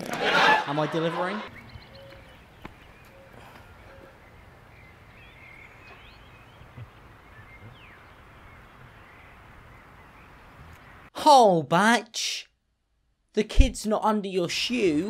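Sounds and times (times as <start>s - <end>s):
bird chirps: 1.5s - 11.1s.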